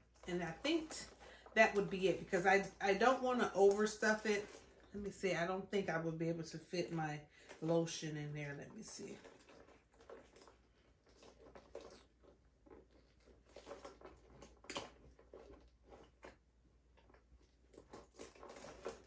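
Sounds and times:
handbag rustling and clicks: 0.0 - 5.7, 6.4 - 19.0.

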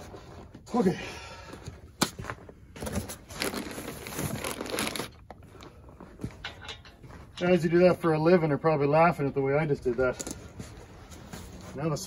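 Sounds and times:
packing material crinkling: 2.8 - 5.6.

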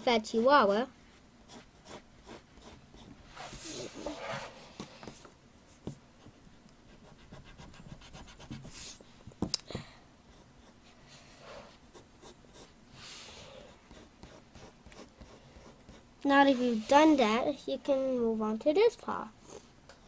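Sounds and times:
pencil scratching on paper: 1.5 - 4.6, 6.9 - 9.0, 10.3 - 17.2.

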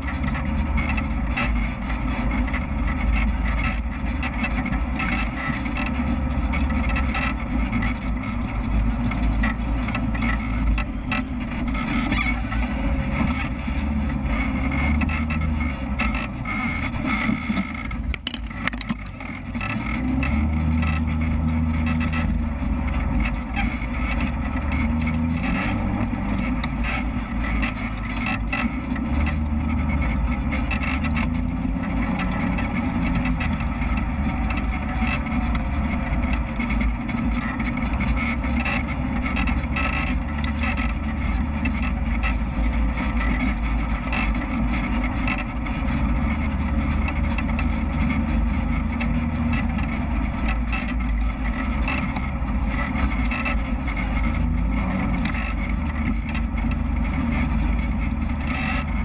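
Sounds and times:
off-road vehicle engine: 0.0 - 59.0
knocks and rattles: 3.2 - 23.4.

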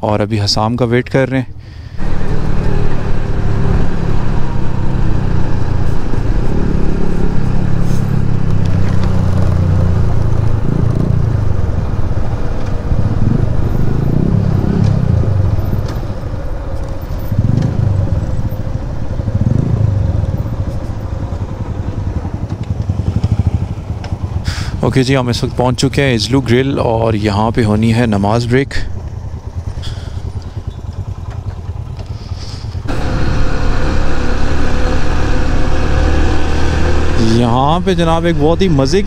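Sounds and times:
motorcycle engine revving: 2.0 - 25.7, 28.9 - 39.0.

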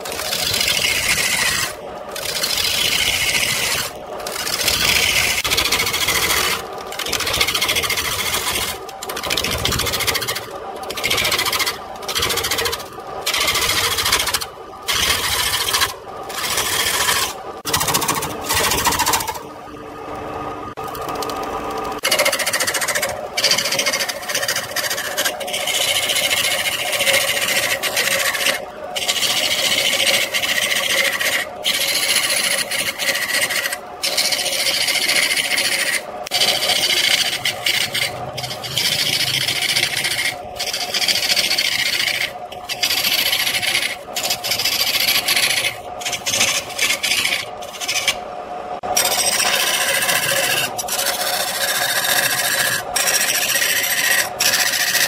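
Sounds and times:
lathe humming: 0.0 - 55.0
wood shavings hissing off lathe tool: 25.2 - 39.4.

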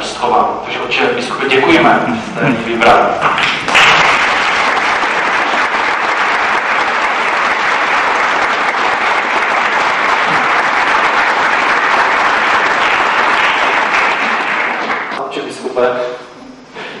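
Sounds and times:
crowd clapping: 3.2 - 15.2.

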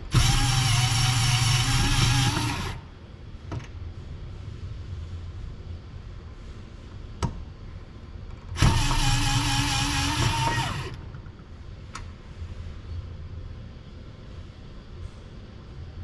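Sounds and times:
electric screwdriver motor whine: 0.1 - 2.8, 8.6 - 11.0.

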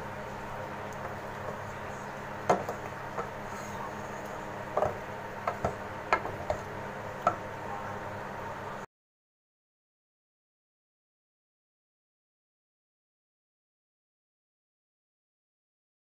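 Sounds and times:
steady hum: 0.0 - 8.9
wooden spatula knocking on pot: 2.4 - 3.4, 4.7 - 7.5.

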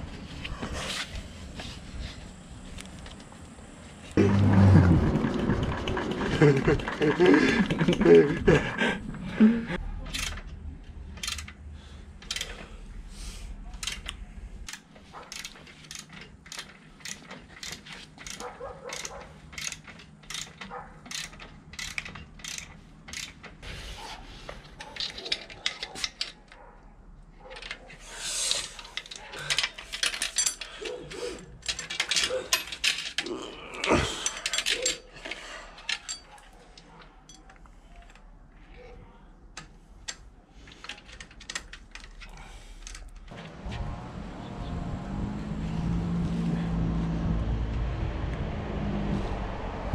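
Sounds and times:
bicycle chain clinks and rattles: 4.1 - 9.2, 11.1 - 12.8, 13.8 - 23.7, 24.4 - 26.7, 27.4 - 38.9
hand tools clicking on metal: 10.1 - 12.7, 13.7 - 23.7, 24.5 - 26.7, 28.5 - 38.3, 39.6 - 43.4.

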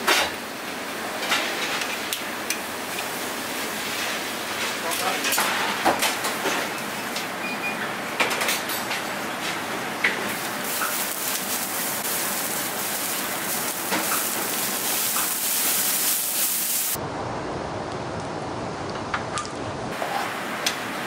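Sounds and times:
liquid sizzling on a griddle: 0.2 - 5.2, 10.3 - 17.0
spray bottle spraying: 10.7 - 17.0.

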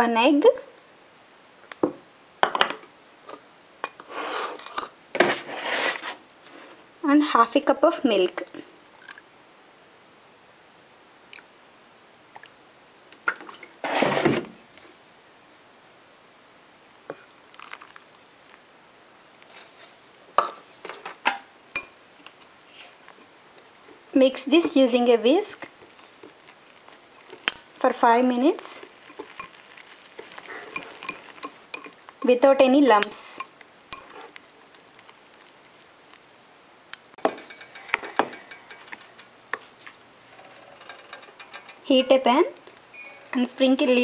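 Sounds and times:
kitchenware clinking on glass bowl: 29.1 - 32.0, 33.4 - 34.2, 37.2 - 39.3
utensils clinking against cookware: 30.5 - 32.3, 37.2 - 39.3, 40.4 - 42.2.

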